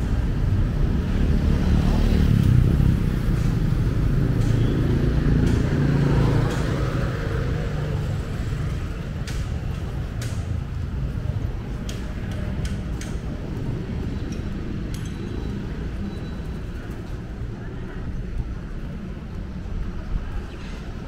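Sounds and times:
low traffic rumble: 0.0 - 21.0.

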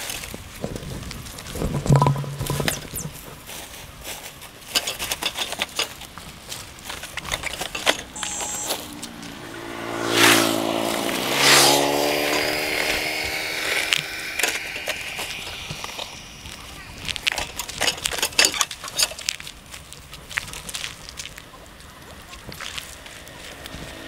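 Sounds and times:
vehicle passing by: 8.0 - 17.6, 22.0 - 24.0.

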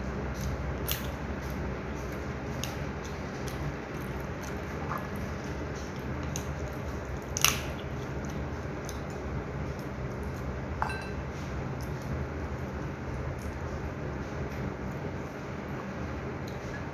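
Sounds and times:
steady low hum: 0.0 - 16.9
meat tearing wetly: 6.0 - 9.0.

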